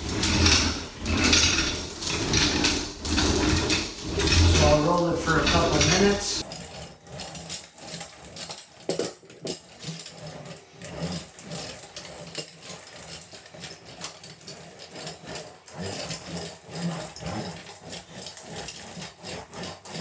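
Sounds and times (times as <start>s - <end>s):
steel roller rolling rumble: 0.0s - 20.0s.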